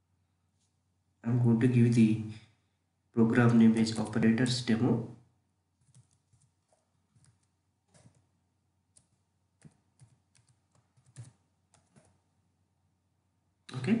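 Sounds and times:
keystrokes on computer keyboard: 5.8 - 8.3, 8.9 - 12.2.

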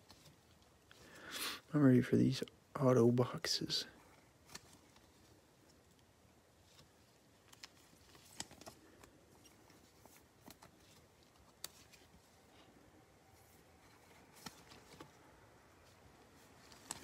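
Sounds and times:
plastic sleeves rustling: 0.0 - 1.3, 4.0 - 17.0.

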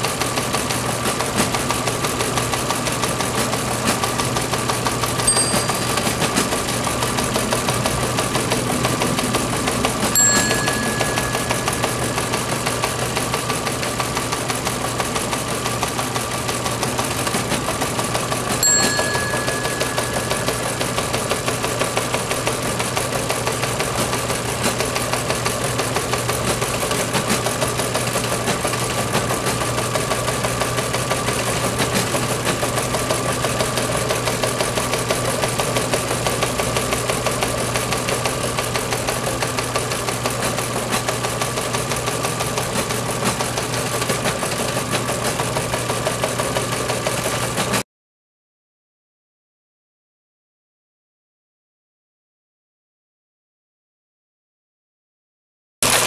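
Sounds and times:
teleprinter clatter: 0.0 - 47.8
bell ding: 5.2 - 6.8, 10.1 - 13.2, 18.6 - 21.5.

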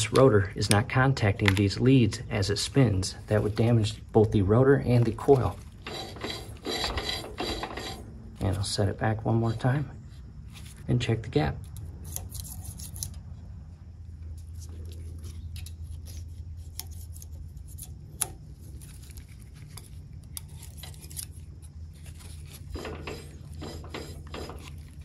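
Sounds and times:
steady low hum: 0.0 - 25.0
metal gauge clicking and scraping: 5.3 - 9.8, 14.8 - 18.4, 22.1 - 25.0.

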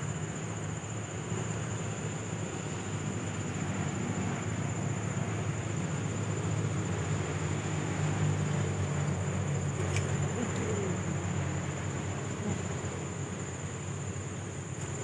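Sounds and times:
distant engine rumble: 0.0 - 15.0.

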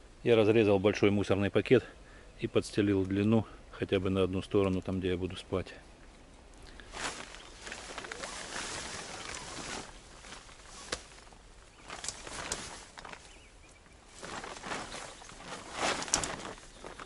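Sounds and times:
tent fabric rustling: 6.7 - 17.0.

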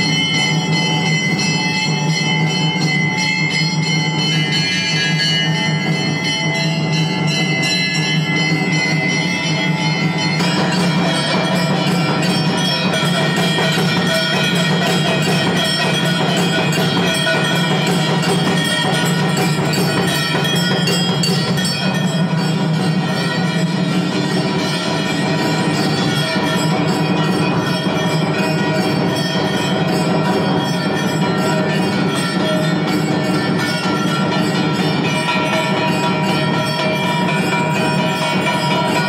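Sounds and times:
percussion: 0.0 - 39.0
temple bells ringing: 0.0 - 39.0.

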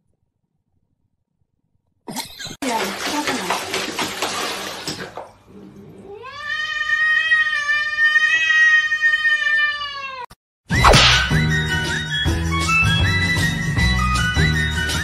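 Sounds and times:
water splashing in a plastic basin: 2.6 - 5.5.

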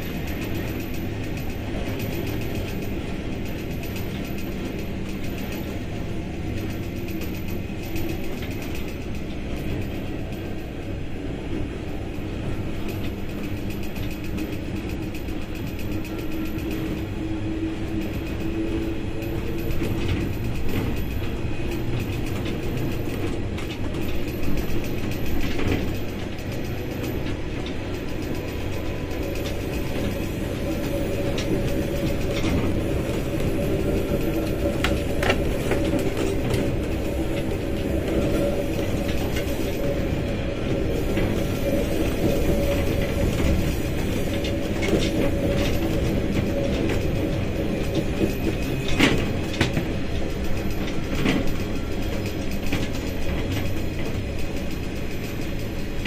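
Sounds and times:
low running drone: 0.0 - 56.0
train wheels rumbling on rails: 0.0 - 56.0.

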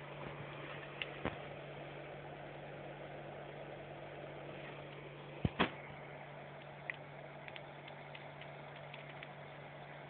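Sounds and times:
electrical hum: 0.0 - 10.0
sharp clicks: 6.6 - 9.4.

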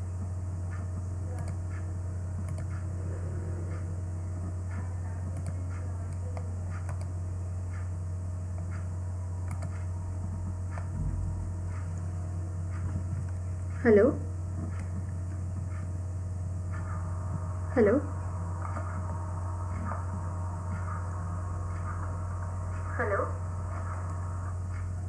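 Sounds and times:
low electrical hum: 0.0 - 25.0
soft low thump: 10.8 - 11.8.

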